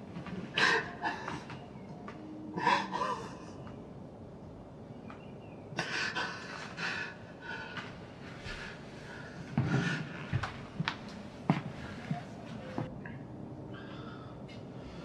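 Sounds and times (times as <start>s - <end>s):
man breathing heavily: 5.8s - 10.5s, 13.7s - 15.0s.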